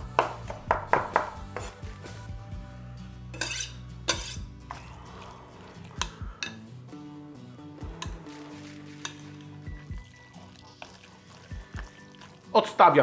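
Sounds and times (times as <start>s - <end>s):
quiet background music: 0.0s - 13.0s
metal utensil scraping glass bowl: 3.4s - 5.0s, 8.0s - 12.5s.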